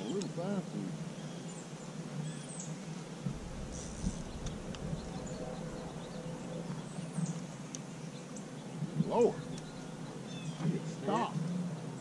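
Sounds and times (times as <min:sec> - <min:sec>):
low rumble: 0:03.2 - 0:07.7
high bird chirps: 0:03.6 - 0:10.6.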